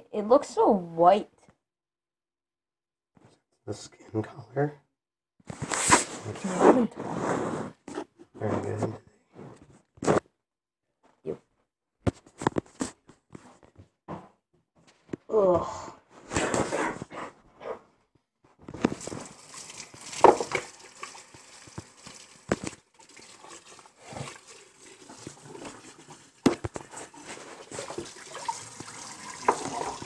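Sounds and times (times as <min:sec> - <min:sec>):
water splashing in sink: 0:18.9 - 0:30.0.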